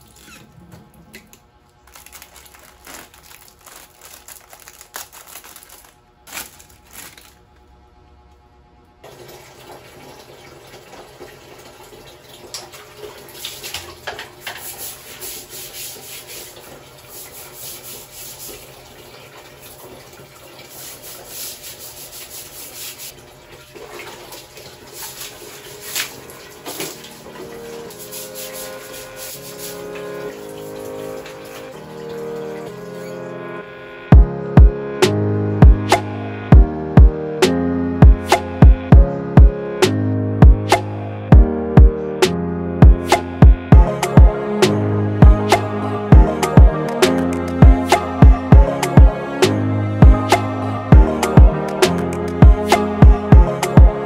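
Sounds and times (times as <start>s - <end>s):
running water: 9.0s - 33.6s
scrubbing and splashing: 12.4s - 31.7s.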